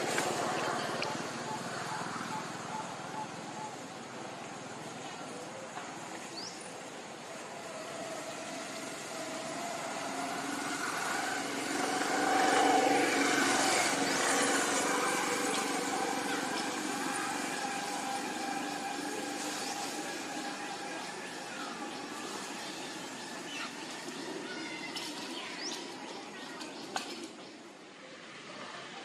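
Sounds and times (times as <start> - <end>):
vehicle engine passing by: 6.3 - 25.8.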